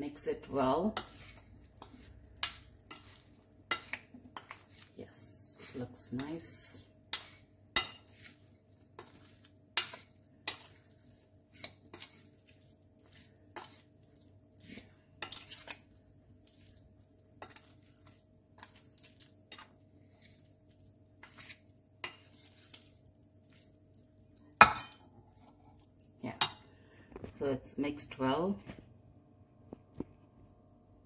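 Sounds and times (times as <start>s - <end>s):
metal spoon clinking in bowl: 24.6s - 25.0s.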